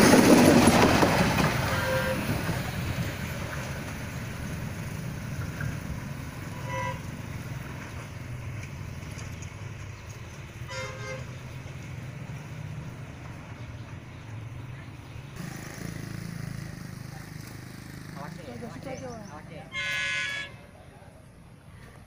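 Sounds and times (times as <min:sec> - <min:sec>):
train horn blasts: 0:01.7 - 0:02.3, 0:06.5 - 0:07.2, 0:10.7 - 0:11.4, 0:19.7 - 0:20.7.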